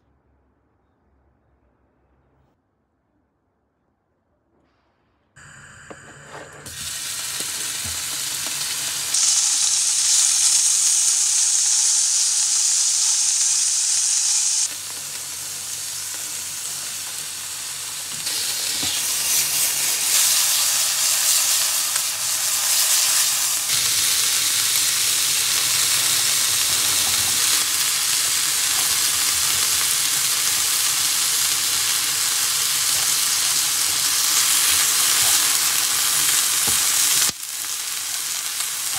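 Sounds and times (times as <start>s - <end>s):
chicken sizzling in a frying pan: 5.4s - 38.9s.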